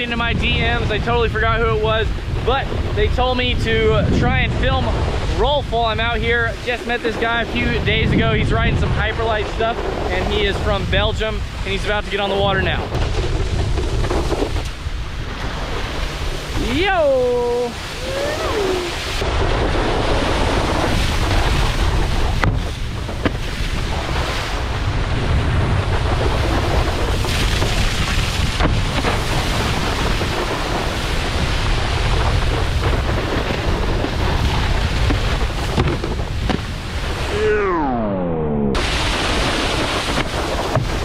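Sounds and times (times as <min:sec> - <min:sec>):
wakeboard spray rushing on water: 0:00.0 - 0:38.0, 0:38.8 - 0:41.0
wind buffeting microphone: 0:00.0 - 0:41.0
board knocking on rails: 0:12.9 - 0:14.8, 0:35.0 - 0:36.7.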